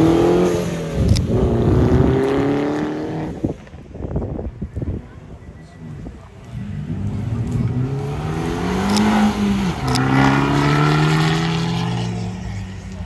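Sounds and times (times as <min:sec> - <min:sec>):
car engine accelerating hard: 0:00.0 - 0:03.5, 0:06.6 - 0:13.0.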